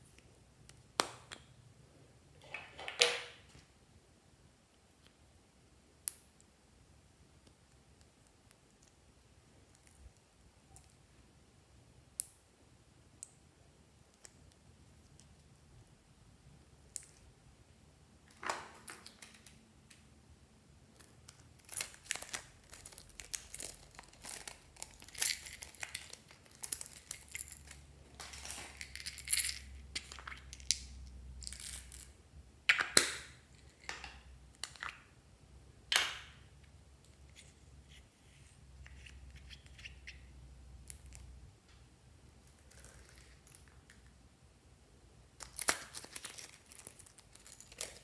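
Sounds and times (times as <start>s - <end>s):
plastic beads rattling into glass dish: 21.7s - 30.2s.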